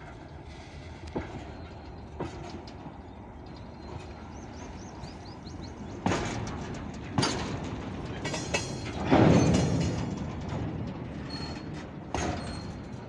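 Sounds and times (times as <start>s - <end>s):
train rumbling: 0.0s - 13.0s
sharp metallic clanks: 5.9s - 10.6s.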